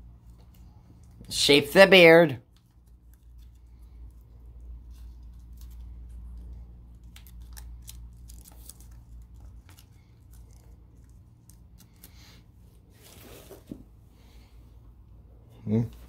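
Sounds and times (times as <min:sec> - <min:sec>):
paper crinkling: 0:02.5 - 0:13.8.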